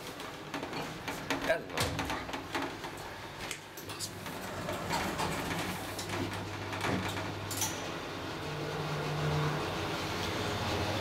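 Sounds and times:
elevator low hum: 0:04.1 - 0:11.0.

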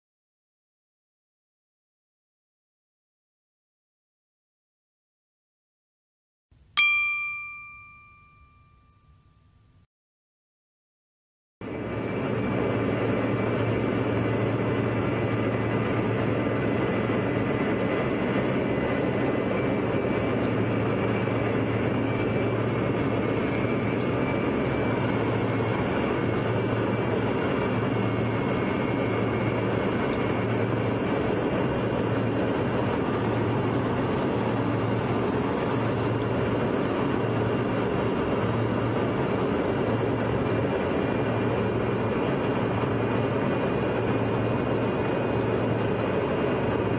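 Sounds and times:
airplane cabin noise: 0:11.6 - 0:46.9.

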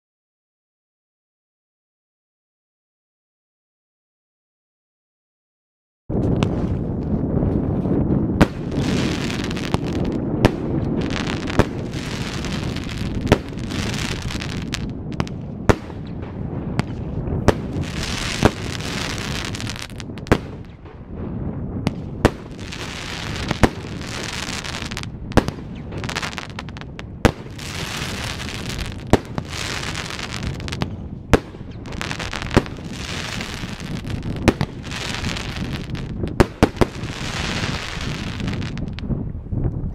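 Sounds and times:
firework bangs: 0:08.3 - 0:39.0
rushing hiss of fireworks: 0:08.5 - 0:20.7, 0:22.2 - 0:30.8, 0:31.7 - 0:39.0.

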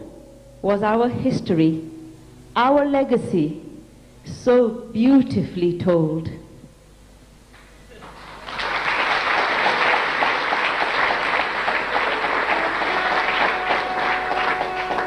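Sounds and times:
audience applauding: 0:08.0 - 0:15.0
faint held musical notes: 0:11.0 - 0:15.0.

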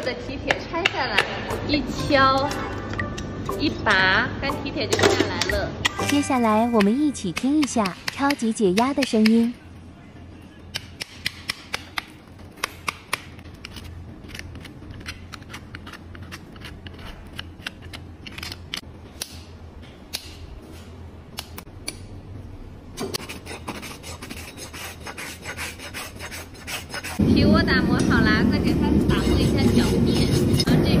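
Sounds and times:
rasp filing hoof: 0:29.1 - 0:30.8.

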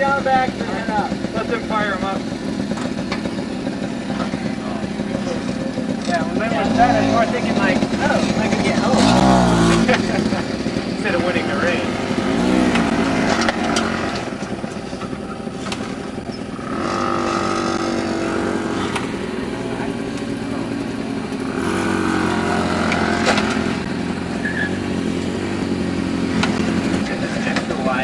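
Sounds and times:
moped engines running: 0:00.0 - 0:28.0.

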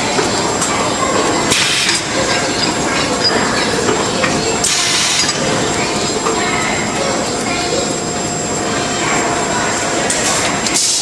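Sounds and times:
bag making machine running: 0:00.0 - 0:11.0.

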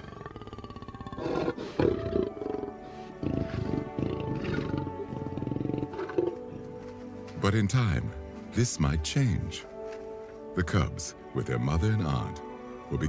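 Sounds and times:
lion growling: 0:00.0 - 0:06.8
background music: 0:00.0 - 0:13.0.

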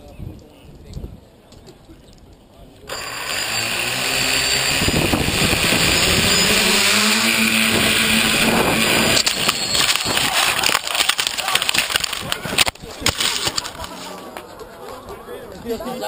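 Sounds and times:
drone propellers whirring: 0:02.9 - 0:12.7.

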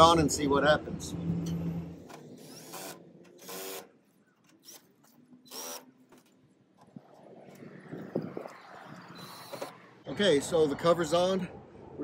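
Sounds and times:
cordless drill whining: 0:02.4 - 0:03.9, 0:04.6 - 0:05.9, 0:09.0 - 0:09.7.

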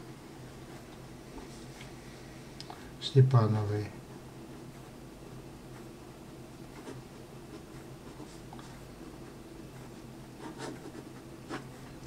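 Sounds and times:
pen scratching on paper: 0:09.8 - 0:12.0.

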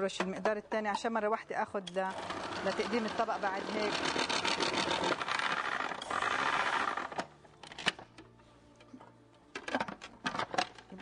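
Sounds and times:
food processor grinding: 0:02.2 - 0:07.2.

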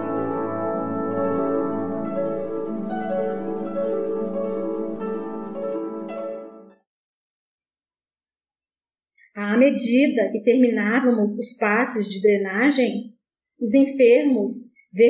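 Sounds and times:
instrumental music sustained tones: 0:00.0 - 0:06.8.

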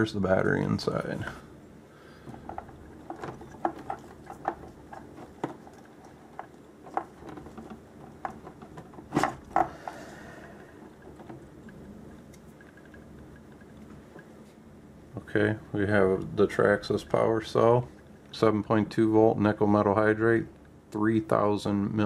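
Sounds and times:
rustling of wires: 0:00.7 - 0:14.8.

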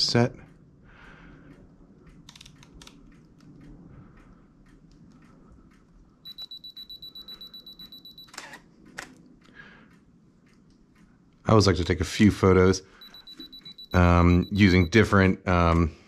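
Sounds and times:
rapid high beeping: 0:06.2 - 0:08.5, 0:12.7 - 0:15.4
camera shutter clacks: 0:08.2 - 0:09.2.

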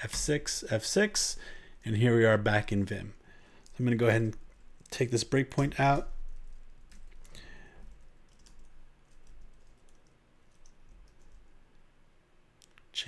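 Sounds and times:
computer keyboard keystrokes: 0:05.6 - 0:11.5.

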